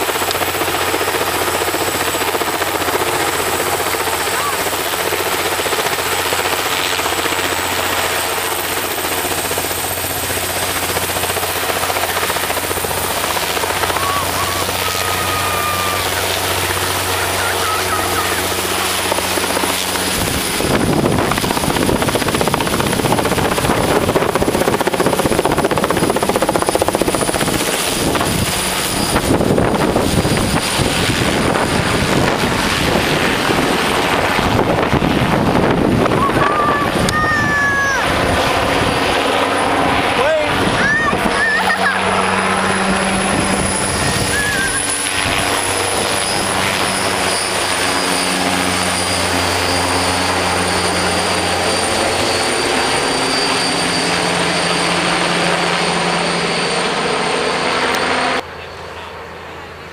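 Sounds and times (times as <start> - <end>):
helicopter rotor thudding: 0.0 - 58.4
high whine: 12.8 - 59.9.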